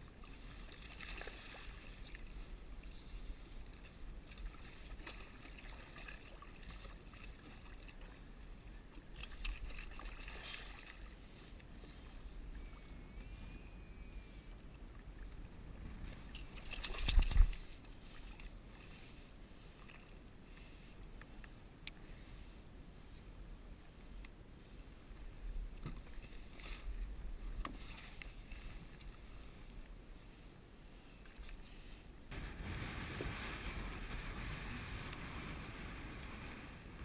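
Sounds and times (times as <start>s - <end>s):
water splashing against kayak hull: 0.1s - 13.5s, 14.3s - 21.5s.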